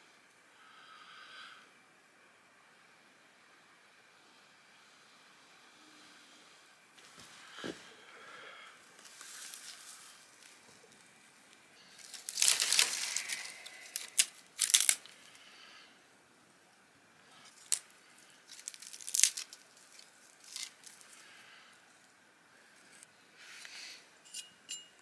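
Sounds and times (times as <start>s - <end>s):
dry twigs crackling: 8.8s - 15.5s, 17.3s - 21.6s.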